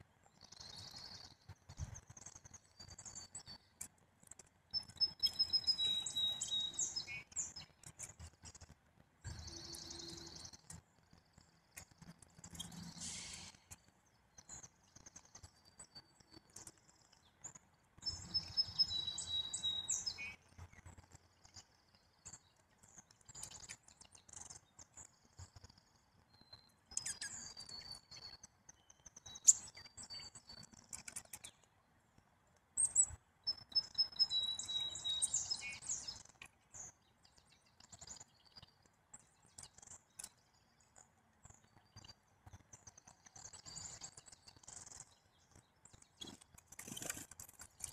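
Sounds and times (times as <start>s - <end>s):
song sparrow singing: 0.2s - 31.7s, 32.8s - 47.9s
soft ticks: 3.8s - 4.5s, 10.6s - 12.8s, 37.4s - 40.4s.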